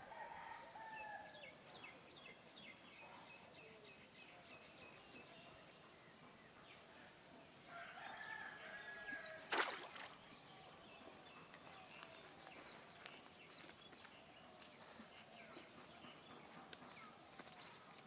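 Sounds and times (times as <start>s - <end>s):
rooster crowing: 7.7s - 9.4s.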